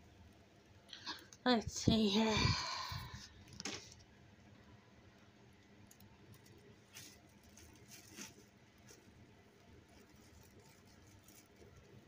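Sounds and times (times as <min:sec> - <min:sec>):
plastic bags rustling: 0:06.2 - 0:12.0.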